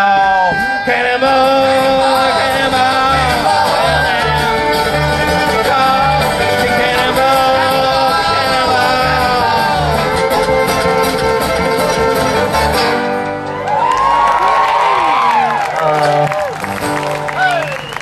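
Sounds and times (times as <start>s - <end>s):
mandolin: 0.0s - 13.7s
fiddle: 0.0s - 17.7s
acoustic guitar: 0.0s - 18.0s.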